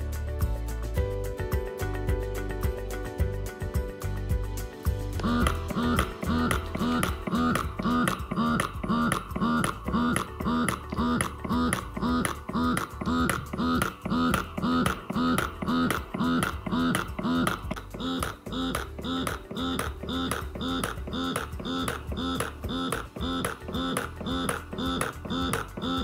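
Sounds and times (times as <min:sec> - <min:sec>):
breast pump motor pulsing: 0:05.2 - 0:26.0
higher tone: 0:05.2 - 0:26.0.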